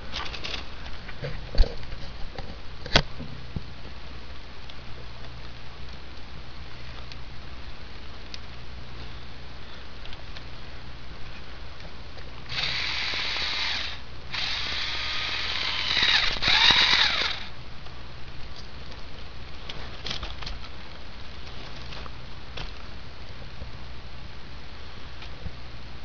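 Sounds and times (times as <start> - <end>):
electric motor whirring through gears: 12.5 - 17.5.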